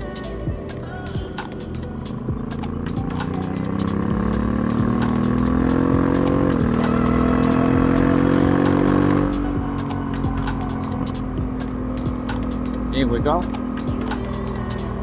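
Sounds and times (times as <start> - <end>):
motorcycle engine accelerating: 1.2 - 15.0.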